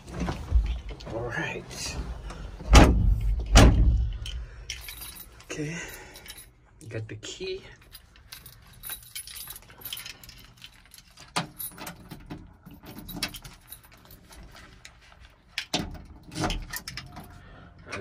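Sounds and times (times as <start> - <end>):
keys jangling: 3.2 - 6.6, 7.7 - 18.0.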